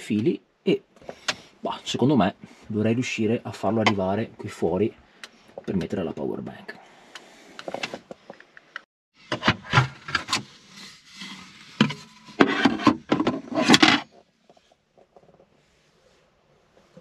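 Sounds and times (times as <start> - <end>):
plastic parts knocking and scraping: 9.2 - 10.5, 11.7 - 15.5.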